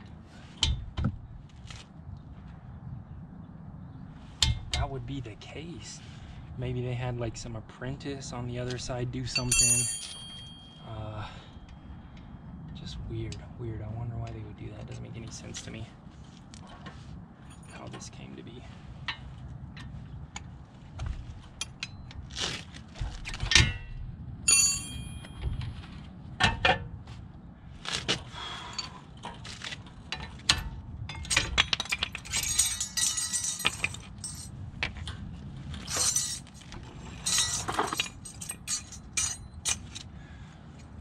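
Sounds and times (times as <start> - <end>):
metal tools clinking: 9.2 - 11.8, 24.5 - 25.8, 30.1 - 35.0, 35.8 - 40.1
metallic ring: 9.3 - 11.8, 23.7 - 25.8, 31.1 - 34.5, 35.8 - 39.8.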